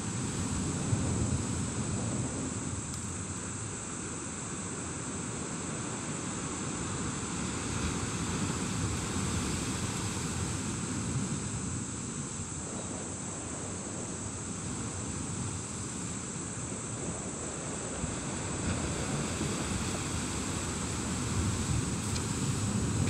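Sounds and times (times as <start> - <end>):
surf washing against rocks: 5.7 - 12.5, 13.4 - 23.0
wind on microphone: 6.8 - 23.0.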